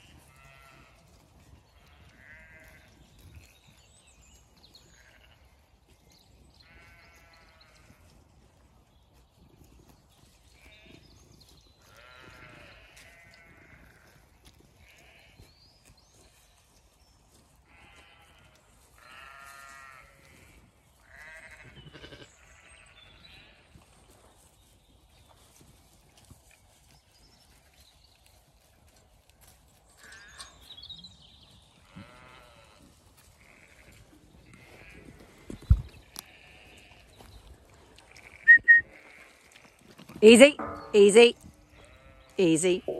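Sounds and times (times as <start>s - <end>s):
sheep bleating: 0.1s - 1.0s, 1.8s - 2.9s, 4.9s - 5.4s, 6.6s - 8.0s, 11.9s - 14.2s, 14.8s - 15.5s, 17.7s - 22.8s, 31.8s - 35.2s, 36.2s - 37.1s, 38.1s - 42.9s.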